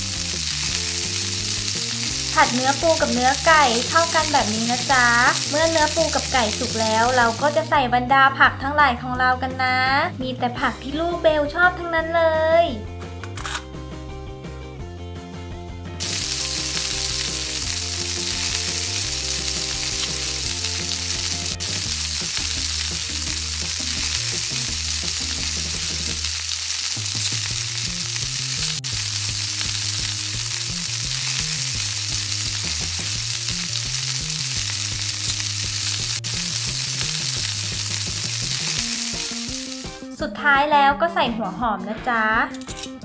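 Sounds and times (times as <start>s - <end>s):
frying sizzle: 0.0s - 7.7s, 16.0s - 40.2s
background music with low tune: 0.0s - 26.3s, 27.2s - 43.0s.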